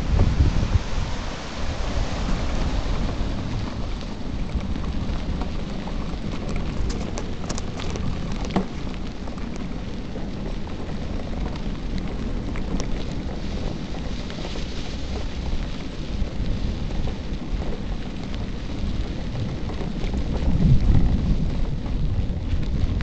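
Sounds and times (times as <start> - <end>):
tyres rolling over gravel: 0.0 - 23.0
wind noise on microphone: 0.0 - 23.0
small clicks and rattles: 2.6 - 23.0.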